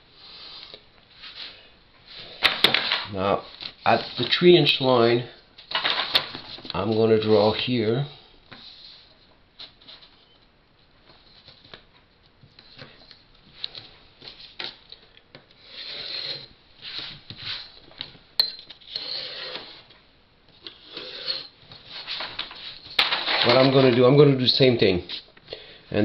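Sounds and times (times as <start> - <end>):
pencil scratching along straightedge: 15.6 - 17.6, 18.9 - 19.9, 20.7 - 21.5.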